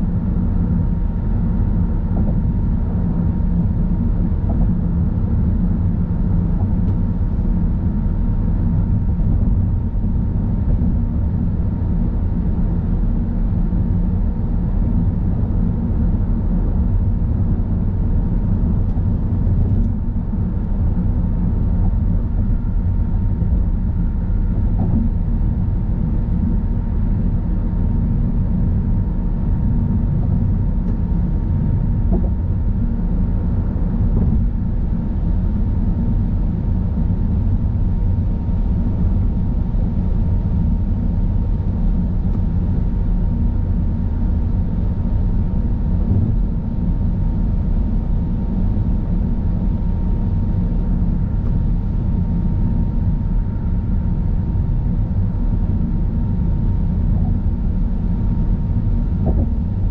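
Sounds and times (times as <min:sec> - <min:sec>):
road and tyre rumble: 0:58.8 - 0:59.9.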